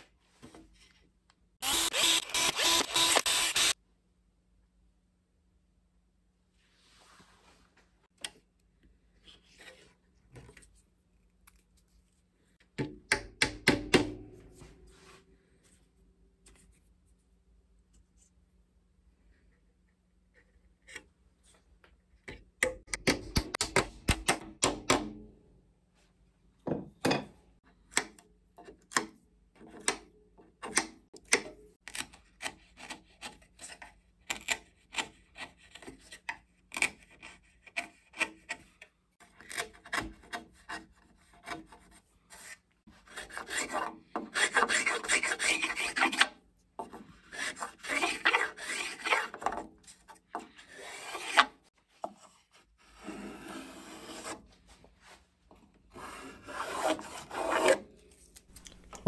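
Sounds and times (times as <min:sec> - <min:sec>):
wood being scraped and shaved: 0:31.9 - 0:55.3, 0:55.9 - 0:59.0.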